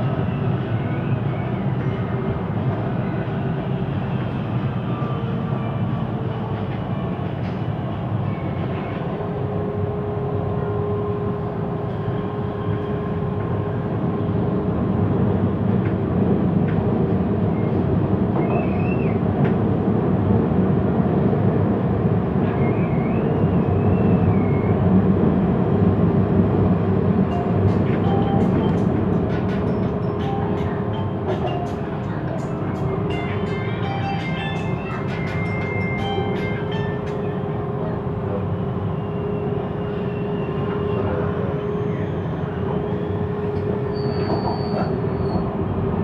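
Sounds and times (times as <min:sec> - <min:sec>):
train wheels rumbling: 0:24.8 - 0:46.0.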